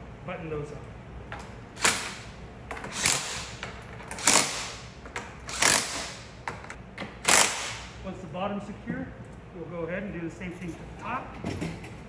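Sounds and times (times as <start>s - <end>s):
impact driver bursts: 1.8s - 4.8s, 5.4s - 6.4s, 7.2s - 8.0s.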